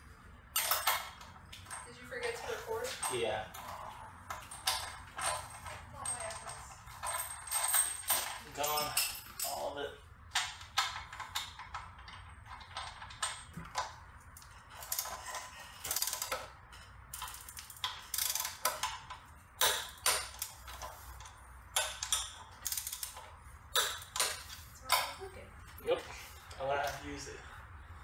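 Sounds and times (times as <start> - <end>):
ratchet wrench clicking: 21.8 - 23.2.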